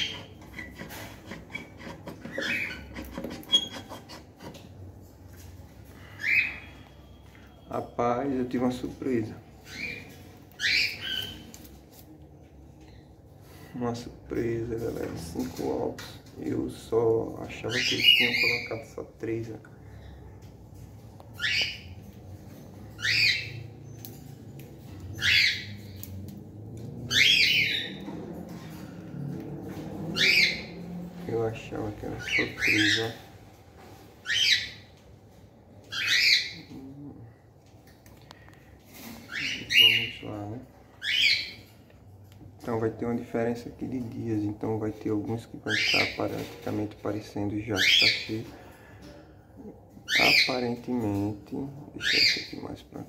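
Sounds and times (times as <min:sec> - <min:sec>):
cockatiel squawking: 0:00.0 - 0:04.2, 0:27.1 - 0:28.0, 0:30.2 - 0:30.6.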